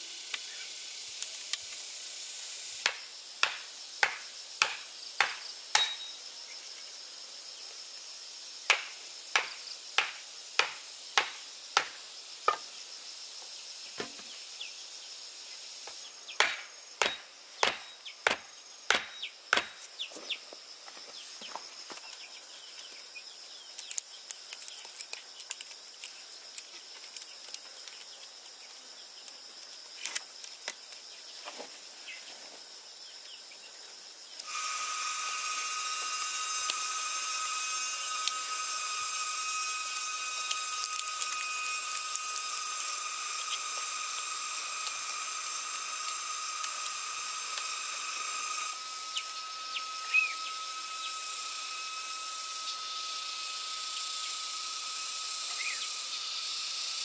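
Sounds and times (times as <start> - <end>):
high-pitched insect drone: 0.0 - 57.0
bird chirp: 49.1 - 51.2, 55.5 - 56.3.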